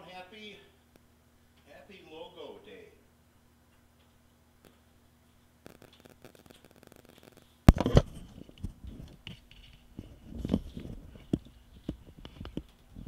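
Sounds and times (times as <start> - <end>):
microphone click: 5.6 - 8.8
microphone handling scraping: 5.7 - 13.0.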